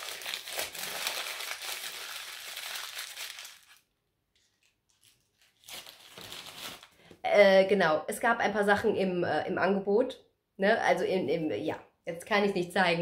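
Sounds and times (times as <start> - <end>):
tissue paper crinkling: 0.0 - 7.0.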